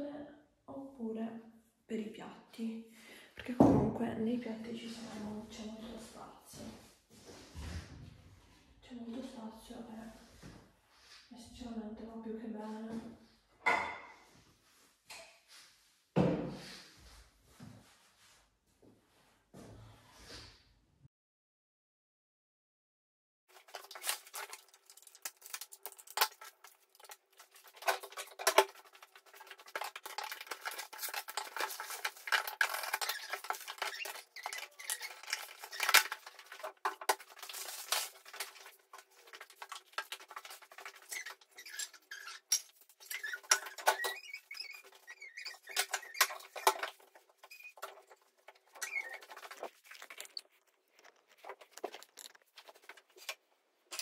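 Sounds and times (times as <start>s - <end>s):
bubble wrap and plastic crinkling: 23.5s - 53.4s.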